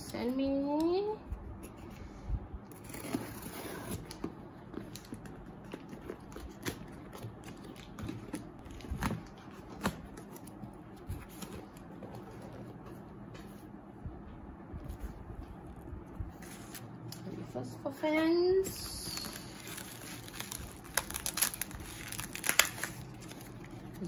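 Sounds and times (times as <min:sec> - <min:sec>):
scissors cutting packing tape: 0:19.2 - 0:23.4.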